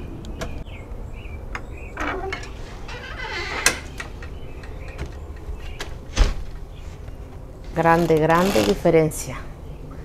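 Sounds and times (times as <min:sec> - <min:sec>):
shed doors pulled open: 0:01.6 - 0:06.5.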